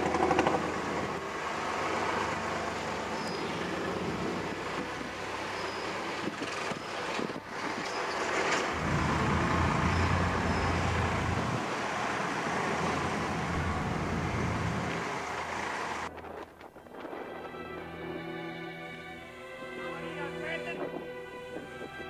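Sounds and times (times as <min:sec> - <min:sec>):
motor engine humming: 0:00.0 - 0:16.1
steady rushing noise: 0:00.0 - 0:16.9.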